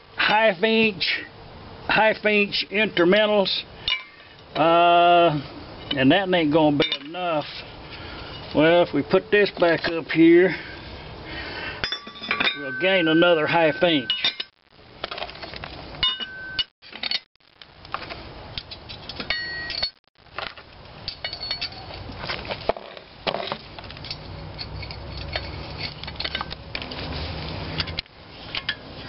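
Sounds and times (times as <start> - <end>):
steel parts clinking and knocking: 3.0 - 4.6, 11.8 - 17.3, 18.6 - 20.0, 21.0 - 22.0, 22.7 - 26.9.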